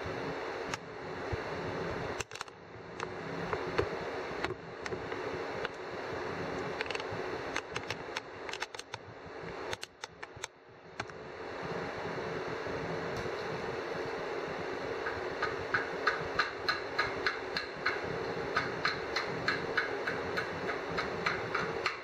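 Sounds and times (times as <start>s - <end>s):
machine hum: 0.0s - 22.0s
sharp clicks and ticks: 6.6s - 9.0s, 9.6s - 11.2s, 15.0s - 22.0s.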